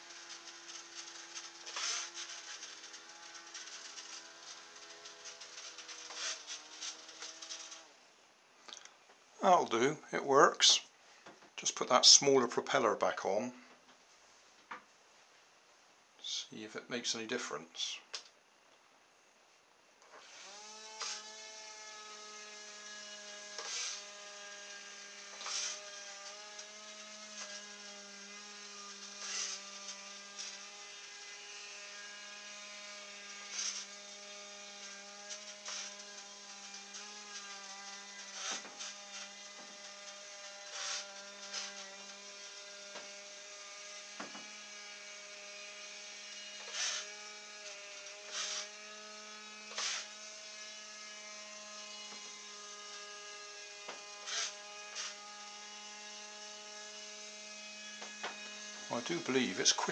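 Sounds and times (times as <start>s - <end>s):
small motor high whine: 0.0s - 8.0s, 20.2s - 59.9s.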